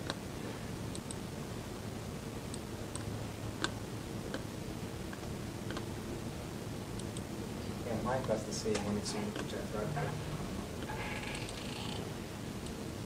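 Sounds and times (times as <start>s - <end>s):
low room hum: 0.0s - 13.0s
computer mouse clicks: 0.9s - 1.2s, 5.1s - 5.9s, 7.0s - 7.3s.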